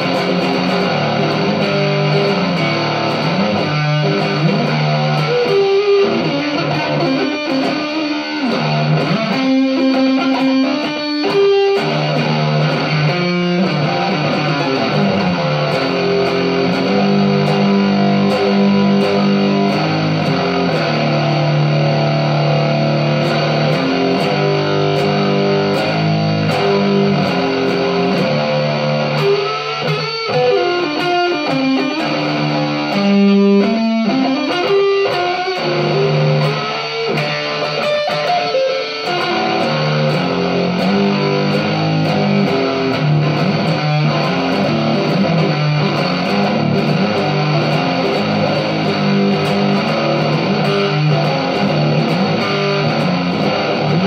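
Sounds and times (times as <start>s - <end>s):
electric guitar playing rock: 0.0s - 54.0s.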